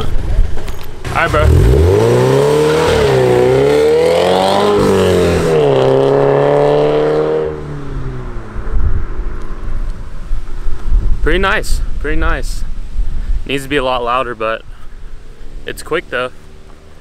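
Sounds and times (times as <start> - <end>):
car engine accelerating: 1.0 - 9.9
wind rumble on microphone: 7.7 - 14.1.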